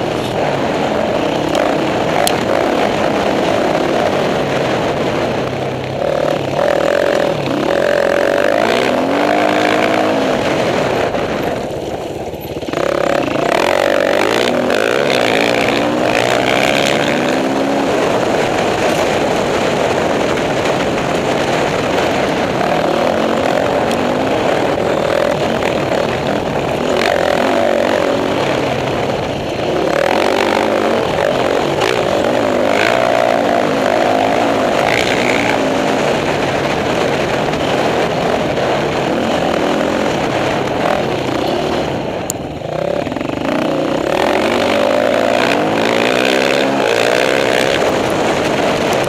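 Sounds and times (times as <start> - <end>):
dirt bike engines revving: 0.0 - 49.0
wind rushing: 0.0 - 49.0.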